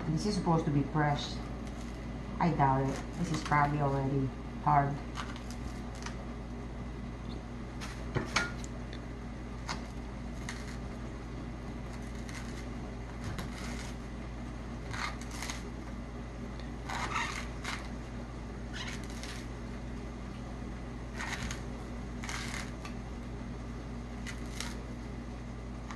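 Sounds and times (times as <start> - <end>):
knife scraping coconut husk: 10.4 - 10.8, 11.9 - 12.7, 13.4 - 14.0, 14.9 - 15.7, 22.2 - 22.8.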